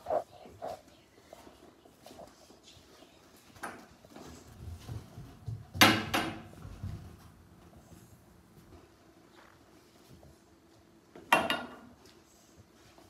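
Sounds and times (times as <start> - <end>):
footsteps walking: 0.0 - 5.8.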